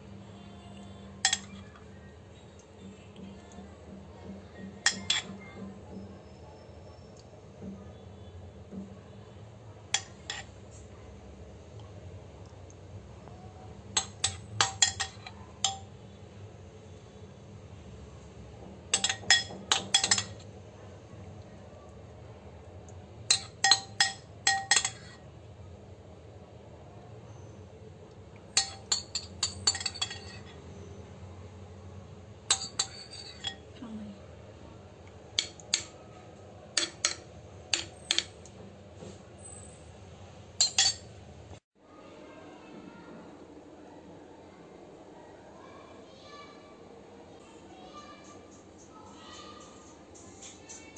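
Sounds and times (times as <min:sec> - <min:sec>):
spoon clinking on ceramic plate: 0:01.2 - 0:01.9, 0:04.6 - 0:05.6, 0:09.9 - 0:10.5, 0:14.0 - 0:15.9, 0:18.9 - 0:20.5, 0:23.3 - 0:25.2, 0:28.5 - 0:30.6, 0:32.5 - 0:33.6, 0:36.8 - 0:38.5, 0:40.6 - 0:41.1.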